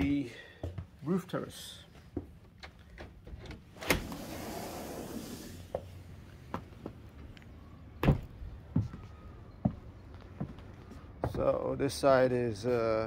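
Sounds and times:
door hissing open: 3.8s - 5.8s.

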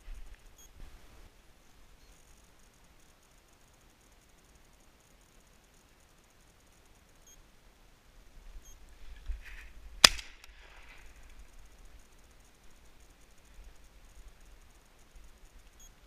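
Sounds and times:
shotgun shot: 10.0s - 10.6s.

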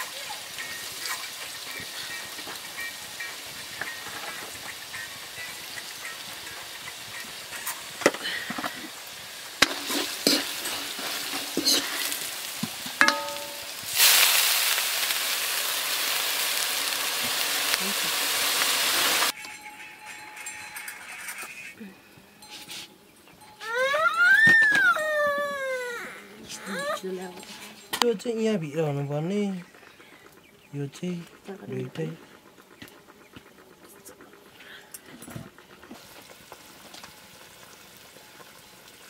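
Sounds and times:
vegetables frying and crackling: 0.0s - 19.4s, 26.8s - 39.0s
water sizzling in hot wok: 0.0s - 19.4s, 35.7s - 39.0s
spoon knocking against pan: 13.0s - 13.7s.

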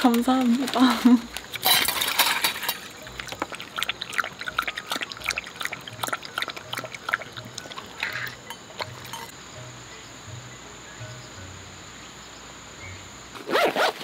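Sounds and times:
dog lapping water from metal bowl: 1.6s - 9.3s.

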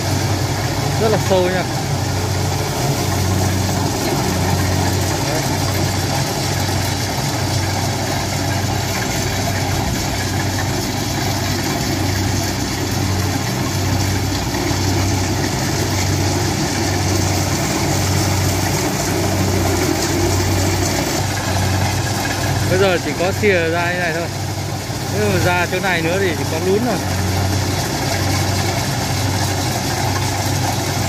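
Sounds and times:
diesel engine throbbing: 0.0s - 31.0s.

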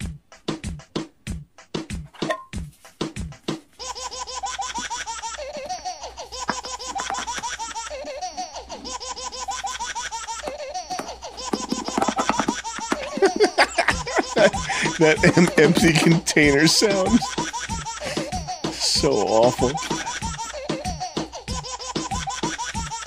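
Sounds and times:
plastic squeeze bottle sputtering: 10.2s - 16.2s.

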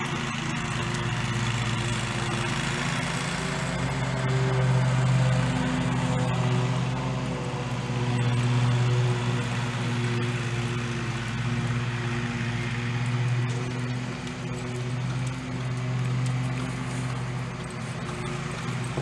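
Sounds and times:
motor droning: 0.0s - 19.0s.

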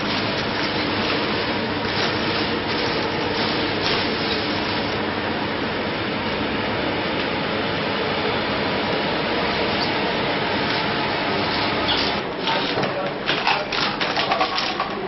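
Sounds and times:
ventilation fans rushing air: 0.0s - 15.0s.

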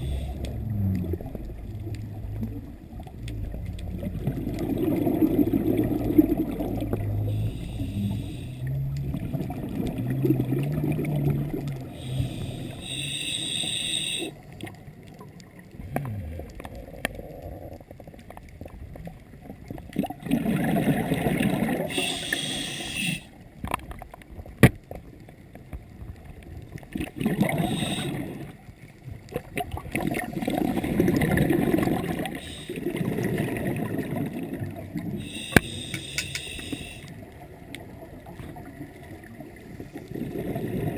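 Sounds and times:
gurgling bubble bursts: 0.0s - 7.5s, 8.3s - 12.4s, 15.7s - 18.2s, 19.6s - 22.0s, 26.9s - 28.6s, 29.2s - 35.3s, 38.0s - 40.9s
hissing regulator inhalation: 7.3s - 8.7s, 12.0s - 14.4s, 21.9s - 23.3s, 27.5s - 28.3s, 32.3s - 32.8s, 35.2s - 37.1s.

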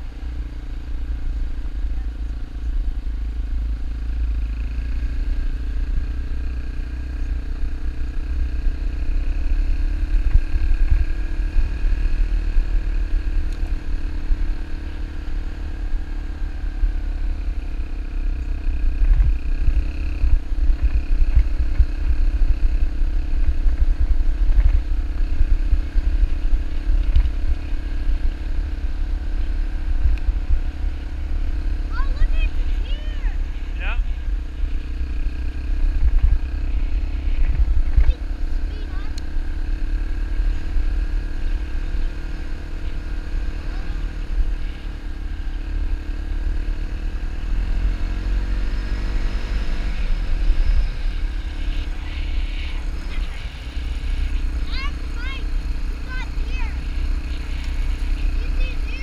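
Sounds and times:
dirt bike engine running: 0.0s - 59.0s.

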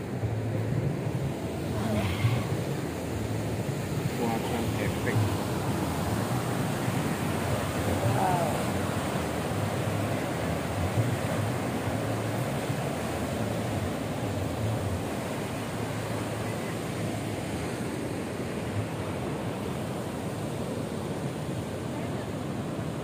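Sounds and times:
waves breaking on rocky shore: 1.4s - 23.0s.

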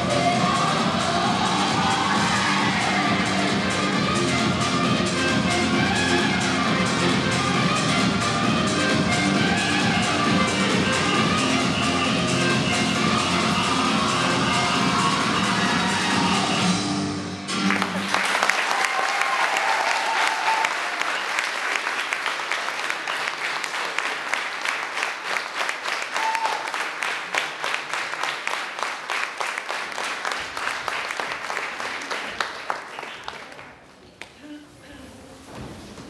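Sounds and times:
dance music: 0.0s - 18.2s
audience applauding: 17.5s - 33.9s.

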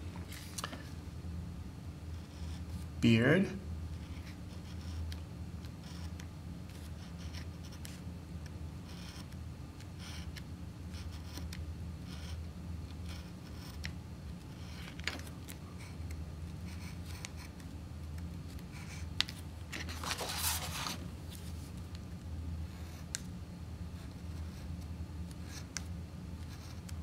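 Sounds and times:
steady low hum: 0.0s - 27.0s
cardstock rustling: 19.3s - 21.6s
craft knife scratching cardstock: 19.8s - 21.0s.

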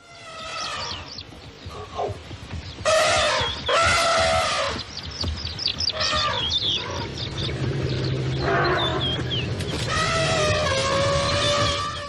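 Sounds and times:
elephant trumpeting: 2.9s - 4.8s, 5.9s - 7.1s, 8.3s - 12.0s.

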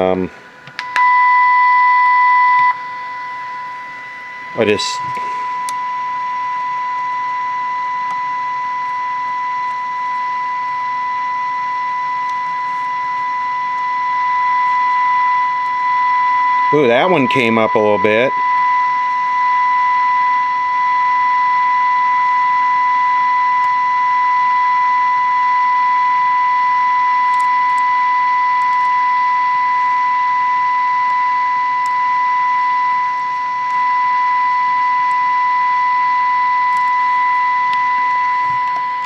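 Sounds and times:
steady high test tone: 0.0s - 39.0s
radio hiss: 4.2s - 5.8s.

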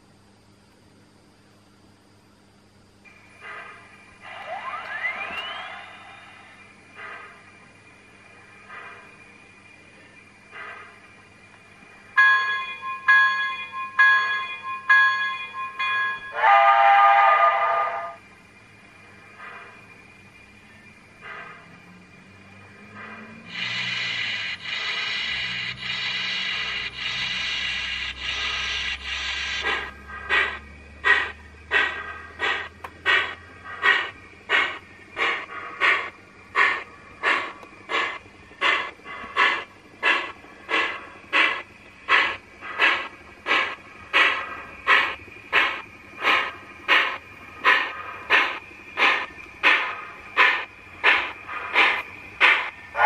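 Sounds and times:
steam locomotive exhaust chuffs: 3.0s - 53.0s
steam hiss: 16.2s - 18.2s, 21.2s - 53.0s.

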